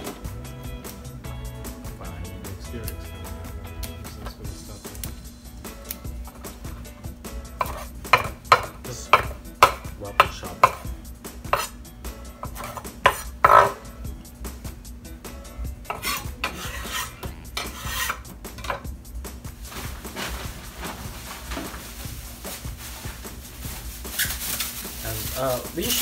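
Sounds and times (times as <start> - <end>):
rustling and scraping into bowl: 7.6 - 8.0, 12.4 - 13.8, 15.9 - 18.8, 19.5 - 26.0
knife chopping on wooden board: 7.6 - 11.8, 12.4 - 13.8, 15.9 - 18.8.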